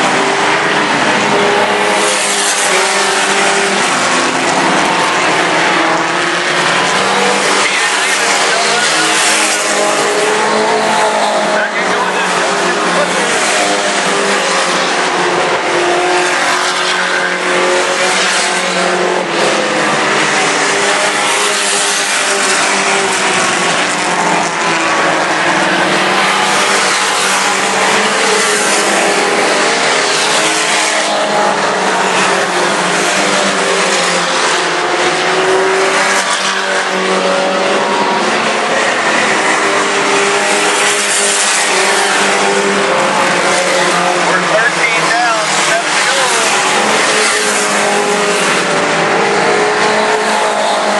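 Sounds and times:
race truck engines: 0:00.0 - 0:50.9.

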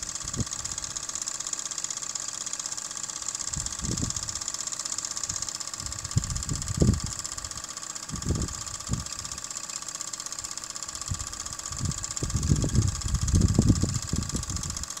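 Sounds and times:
wind buffeting microphone: 0:03.6 - 0:04.4, 0:05.8 - 0:07.2, 0:08.1 - 0:09.1, 0:11.1 - 0:14.8.

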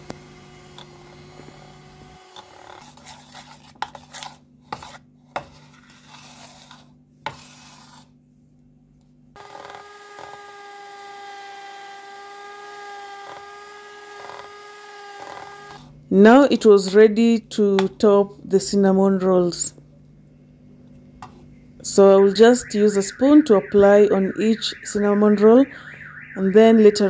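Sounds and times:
utensil scraping and tapping bowl: 0:02.9 - 0:08.0
faint hum: 0:15.8 - 0:27.0
steady pitched hum: 0:15.9 - 0:27.0.

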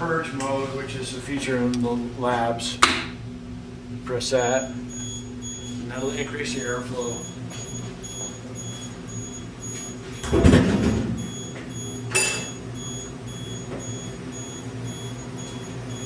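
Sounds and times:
fume hood airflow hum: 0:00.0 - 0:16.0
faint high beeps: 0:04.5 - 0:16.0.

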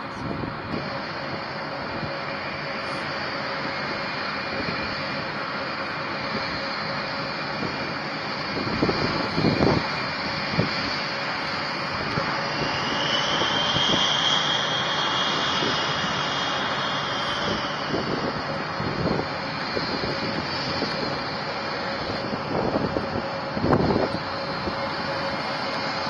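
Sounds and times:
jet engines roaring with whine: 0:00.0 - 0:26.0.

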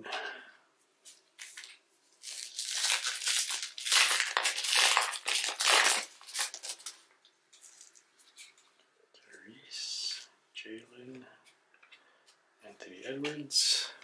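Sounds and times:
plastic wrapper crinkling: 0:01.4 - 0:08.7.

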